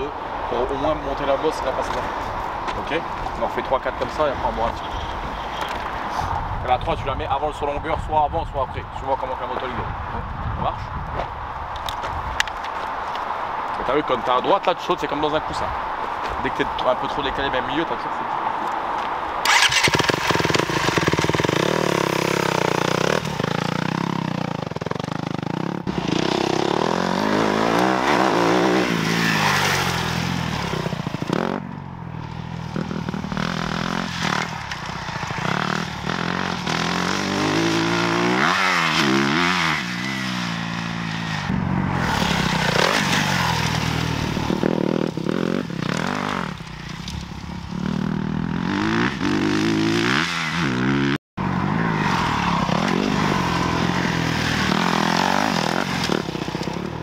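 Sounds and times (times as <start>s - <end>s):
motocross bike engine revving: 19.4s - 31.7s, 32.6s - 47.0s, 47.6s - 57.0s.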